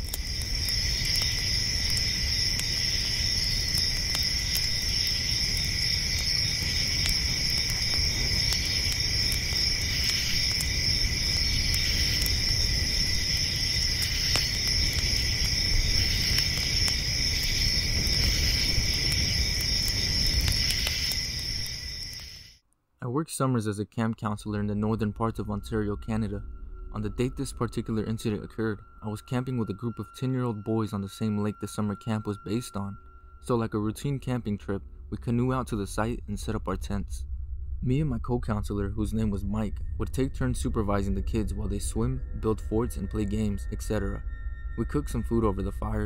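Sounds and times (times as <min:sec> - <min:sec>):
low rumble: 0:00.0 - 0:22.2, 0:24.4 - 0:29.9, 0:32.9 - 0:46.0
crickets chirring: 0:00.0 - 0:22.6, 0:39.2 - 0:46.0.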